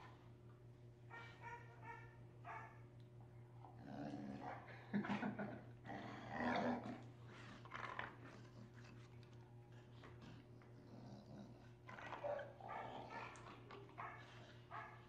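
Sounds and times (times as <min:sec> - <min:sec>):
dog growling: 0:03.7 - 0:08.9, 0:10.1 - 0:14.8.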